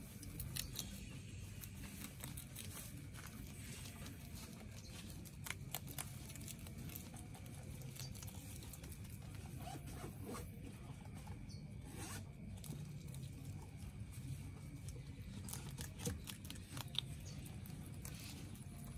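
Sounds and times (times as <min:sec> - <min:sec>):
rabbits chewing greens: 0:00.0 - 0:18.9.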